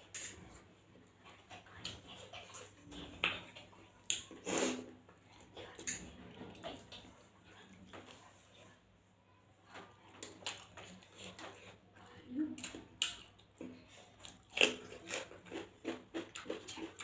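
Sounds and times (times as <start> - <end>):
wet chewing and lip smacking: 1.2 - 4.5, 12.6 - 17.0.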